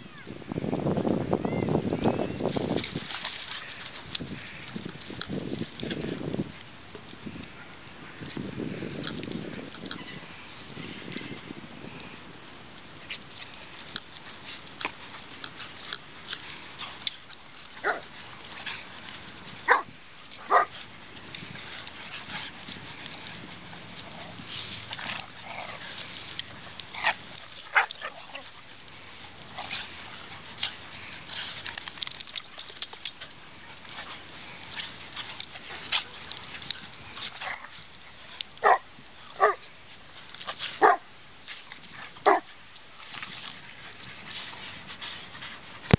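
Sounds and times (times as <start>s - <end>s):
dogs scuffling: 2.0s - 7.5s, 8.1s - 45.9s
dogs barking: 17.8s - 18.0s, 19.6s - 20.8s, 27.0s - 28.4s, 38.6s - 38.8s, 39.4s - 39.6s, 40.8s - 41.0s, 42.2s - 42.5s.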